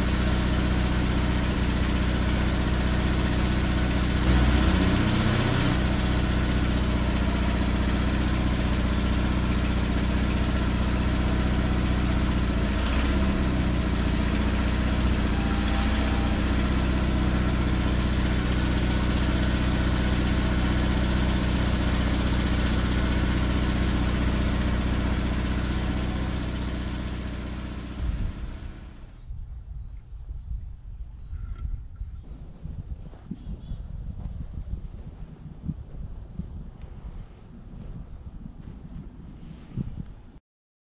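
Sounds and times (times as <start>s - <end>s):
van engine idling: 0.0s - 29.2s.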